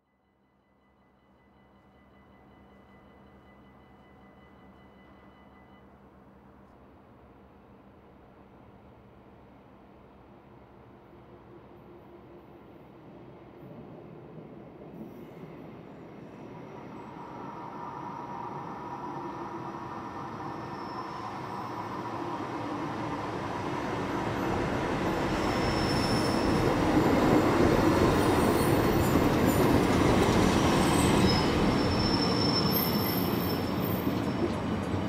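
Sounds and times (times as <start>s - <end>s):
train rumble: 2.1s - 35.0s
high-pitched wheel and brake squeals: 20.0s - 22.2s, 25.2s - 34.7s.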